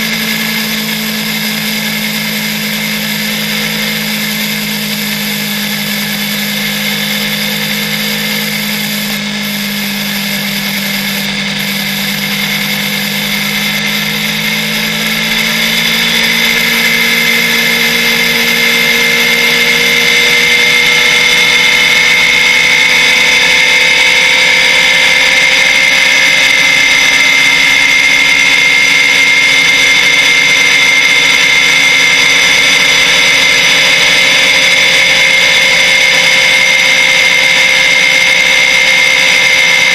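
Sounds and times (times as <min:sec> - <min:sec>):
motorcycle engine accelerating: 0:00.0 - 0:39.9.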